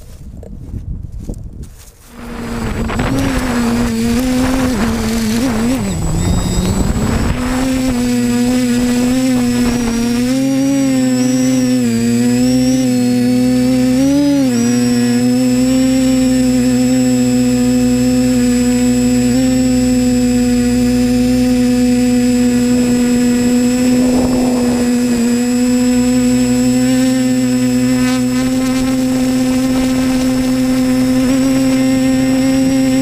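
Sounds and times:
model aircraft motors whining: 2.1s - 33.0s.

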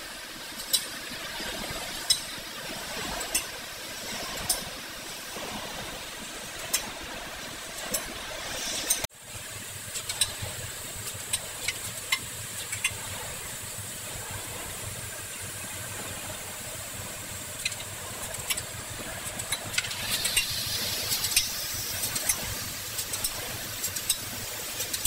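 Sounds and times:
sharp clicks and ticks: 9.9s - 13.0s, 17.5s - 25.0s.

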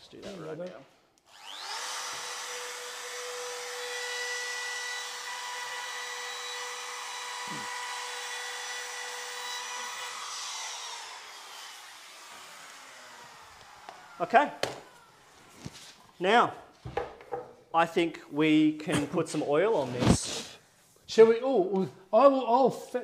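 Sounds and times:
trim router whining: 1.2s - 15.9s.

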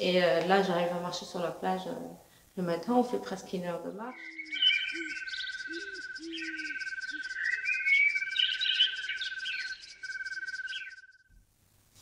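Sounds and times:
insects chirping: 3.0s - 11.3s
birds calling: 3.9s - 11.2s.

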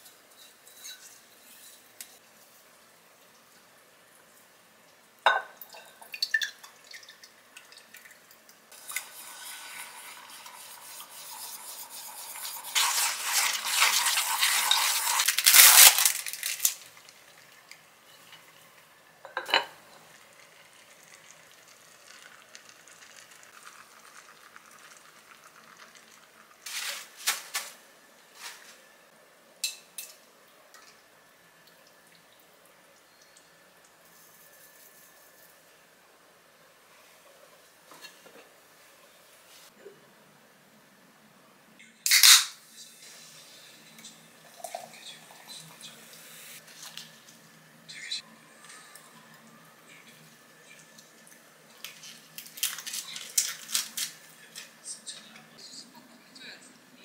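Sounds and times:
dishes clinking: 5.2s - 6.6s, 19.2s - 19.8s
egg sizzling in hot pot: 5.2s - 27.4s.

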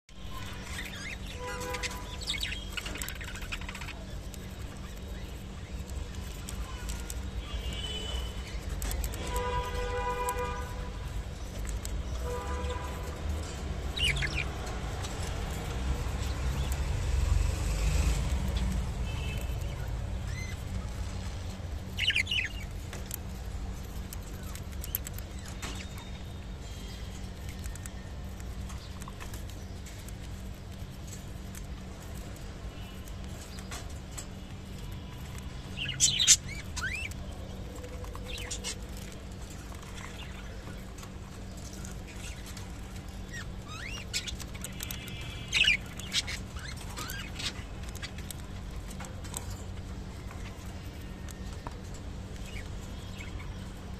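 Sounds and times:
budgerigars chirping: 0.4s - 9.4s, 12.2s - 16.8s, 21.9s - 23.2s, 35.7s - 37.3s, 41.8s - 48.4s
small clicks: 2.4s - 12.2s.

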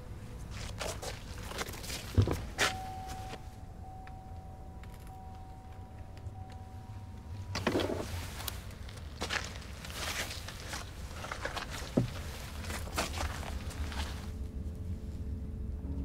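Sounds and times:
footsteps crunching on snow: 0.4s - 3.3s, 7.7s - 14.4s
faint high tone: 2.7s - 7.6s.

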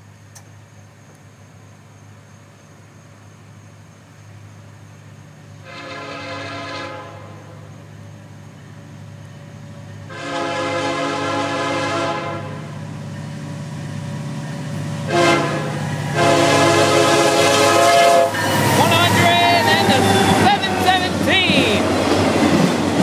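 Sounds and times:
train rumbling: 0.0s - 23.0s
locomotive air horn blasts: 5.6s - 7.6s, 10.1s - 12.7s, 15.1s - 21.2s.

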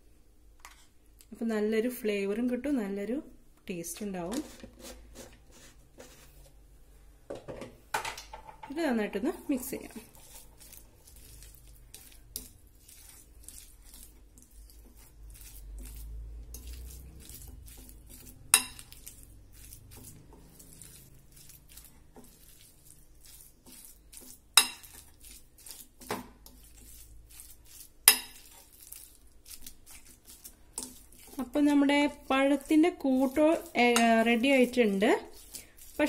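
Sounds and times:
plastic spoon scraping a bowl: 4.0s - 6.6s, 9.8s - 36.0s.

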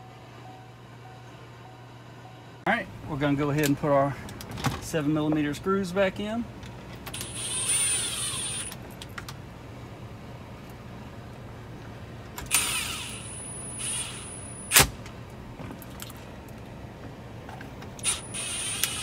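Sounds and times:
low steady hum: 0.0s - 19.0s
impact driver whine: 7.1s - 8.8s, 12.4s - 14.9s, 18.0s - 19.0s.

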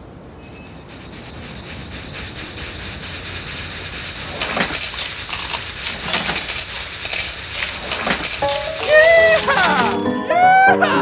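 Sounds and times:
coins clinking through metal pipes: 4.1s - 10.2s.

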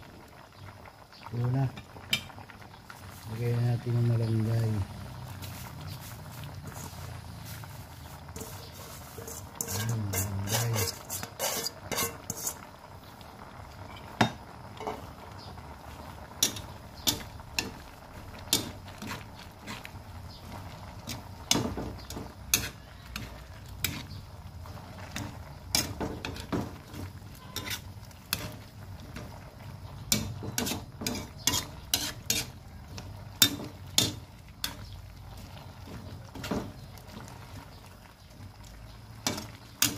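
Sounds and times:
liquid bubbling: 0.0s - 39.9s
metal spoon scraping pot: 6.6s - 12.7s, 18.4s - 29.4s, 30.1s - 36.8s.

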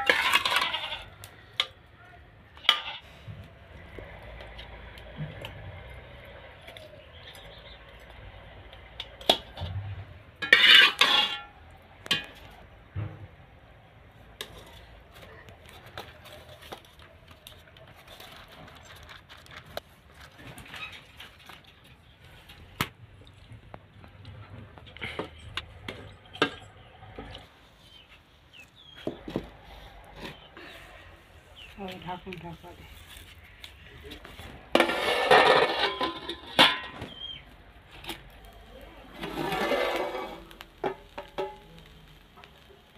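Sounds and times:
metal ladle scraping pot: 0.0s - 1.7s, 2.6s - 3.2s, 9.2s - 12.5s, 34.3s - 37.3s, 39.0s - 41.6s.

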